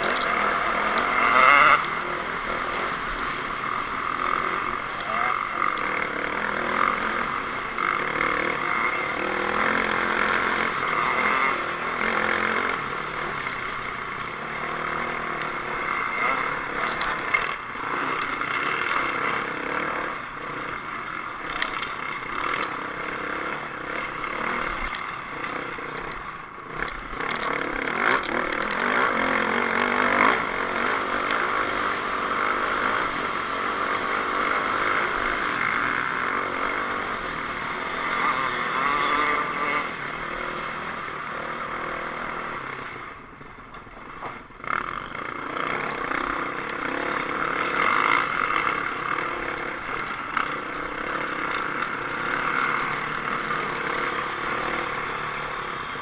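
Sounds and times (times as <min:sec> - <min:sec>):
stones clicking and knocking: 0:00.0 - 0:02.1, 0:26.9 - 0:29.0
dirt bike engine: 0:00.0 - 0:56.0.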